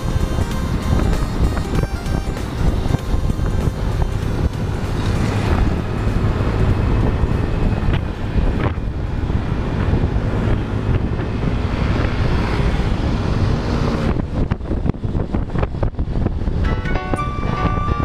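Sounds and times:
music with regular beat: 0:00.0 - 0:04.7
motorcycle engine rumble: 0:00.0 - 0:18.0
wind rushing over microphone: 0:00.0 - 0:18.0.

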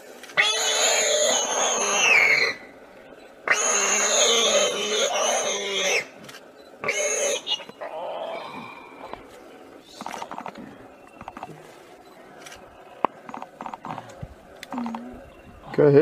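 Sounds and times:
young pig squealing: 0:00.4 - 0:02.7, 0:03.5 - 0:06.1, 0:06.8 - 0:08.4.

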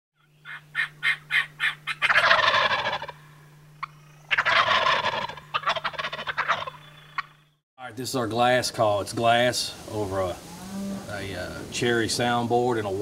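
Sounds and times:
short turkey calls: 0:00.2 - 0:07.5
steady low hum: 0:00.2 - 0:13.0
turkey gobbling: 0:00.4 - 0:07.6.

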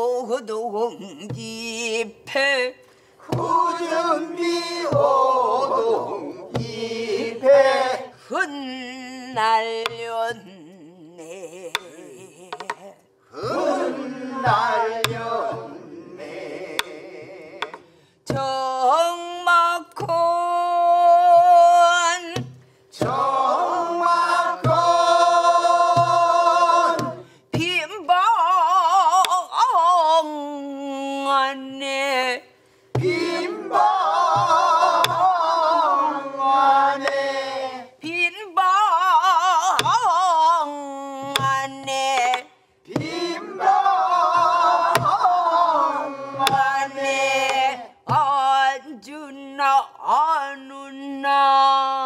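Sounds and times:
barrel drum beating: 0:03.2 - 0:07.8, 0:13.4 - 0:18.6, 0:22.2 - 0:27.8, 0:33.0 - 0:35.8, 0:41.2 - 0:45.6, 0:46.3 - 0:48.4
group singing folk song in unison: 0:03.2 - 0:10.5, 0:13.3 - 0:19.1, 0:19.8 - 0:30.2, 0:31.5 - 0:51.8.

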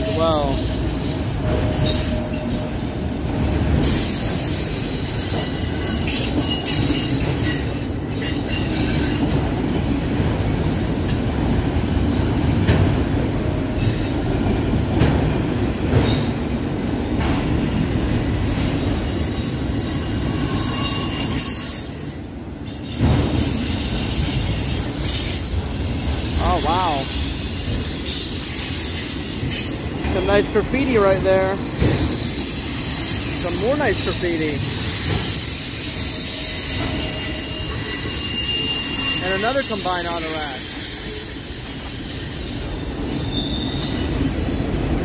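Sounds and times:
high wheel squeals: 0:00.0 - 0:03.0, 0:18.6 - 0:30.6, 0:31.3 - 0:44.2
steel wheels rumbling on rail: 0:00.0 - 0:45.0.

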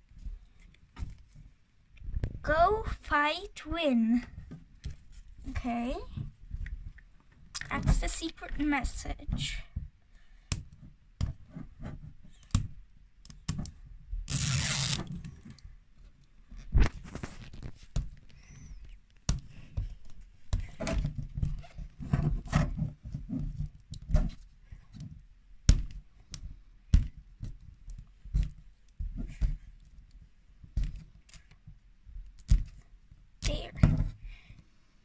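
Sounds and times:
plastic band peeling rasp: 0:14.3 - 0:15.6, 0:16.6 - 0:24.4.

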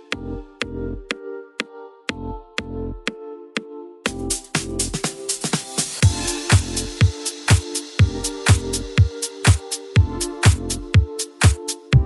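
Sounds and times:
electronic dance music: 0:04.1 - 0:12.0.

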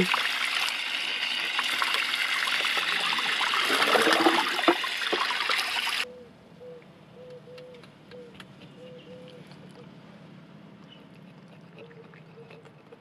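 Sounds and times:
tap water splashing into sink: 0:01.4 - 0:06.0.

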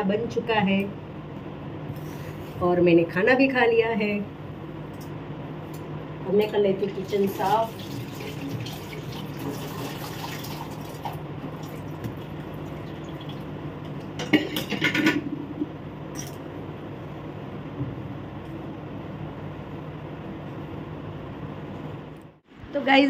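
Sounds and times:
dishes and utensils clattering: 0:14.2 - 0:15.4.

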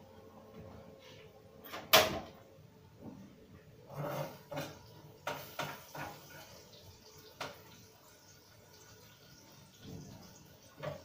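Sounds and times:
pots knocking and clinking: 0:04.0 - 0:06.6, 0:09.8 - 0:11.0.

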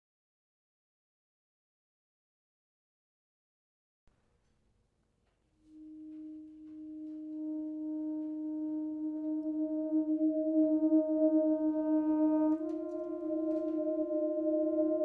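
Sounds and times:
saxophone long held note: 0:05.6 - 0:15.0.

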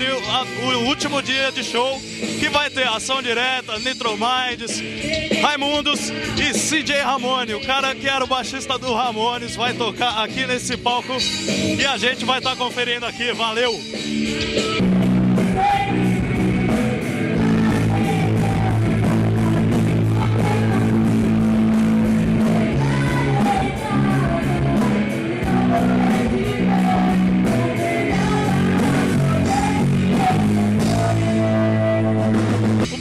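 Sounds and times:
fast drumming: 0:00.0 - 0:31.4
distorted electric guitar: 0:00.0 - 0:33.0
woman singing into a microphone: 0:04.8 - 0:08.0, 0:15.4 - 0:16.4, 0:17.3 - 0:32.4
bass chords: 0:08.7 - 0:33.0.

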